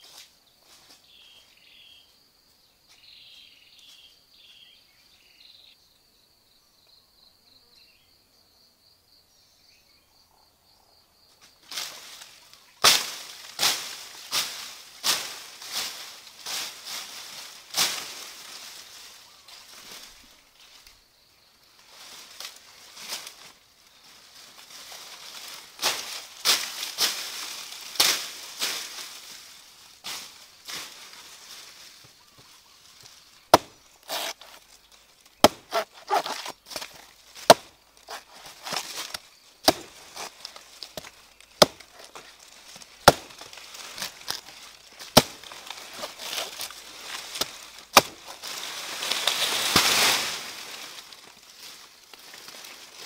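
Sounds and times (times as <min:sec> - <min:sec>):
stem falling through leaves: 0:11.6 - 0:20.8, 0:21.8 - 0:53.0
dry leaves rustling: 0:11.6 - 0:21.0, 0:21.7 - 0:53.0
machete chopping banana stem: 0:33.5 - 0:34.6, 0:35.4 - 0:42.2, 0:43.0 - 0:46.7, 0:47.3 - 0:48.4.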